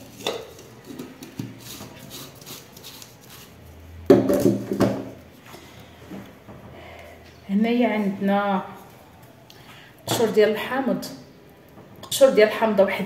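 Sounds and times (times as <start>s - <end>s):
dishes clattering: 0.0s - 1.5s.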